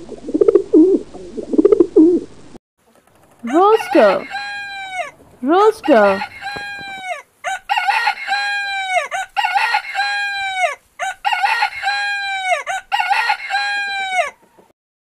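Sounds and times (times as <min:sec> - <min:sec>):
rooster crowing: 0:03.4 - 0:14.7.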